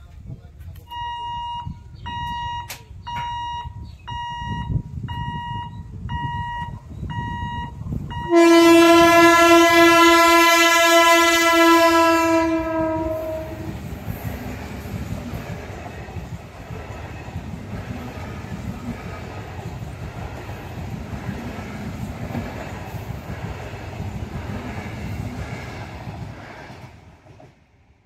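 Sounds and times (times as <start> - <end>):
level crossing warning beeper: 0.9 - 13.6
train wheels rumbling: 1.8 - 28.0
train horn blast: 8.2 - 13.8.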